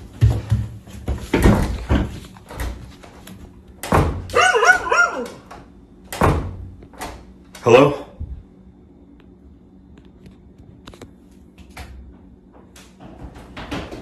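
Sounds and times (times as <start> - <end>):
footsteps on wooden stairs: 0.0 - 3.1
dog barking: 4.3 - 5.5.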